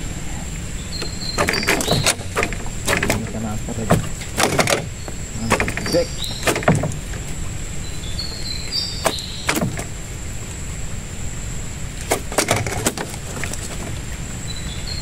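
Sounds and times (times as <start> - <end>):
knocks against wooden boat: 1.0 - 7.3, 9.0 - 9.9, 12.1 - 14.0.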